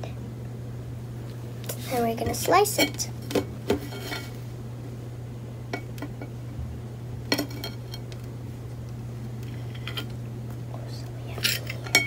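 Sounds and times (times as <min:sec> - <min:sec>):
low hum: 0:02.8 - 0:12.0.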